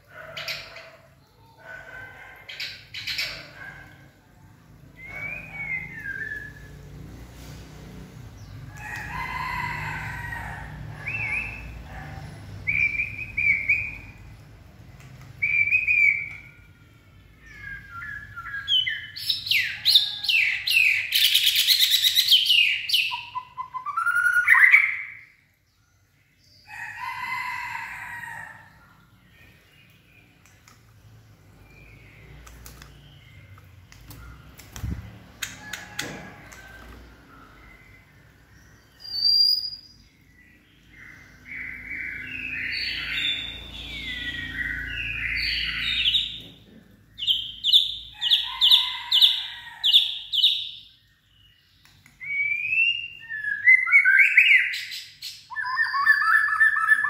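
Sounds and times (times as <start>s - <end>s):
bird singing whistled phrases: 55.5s - 57.0s.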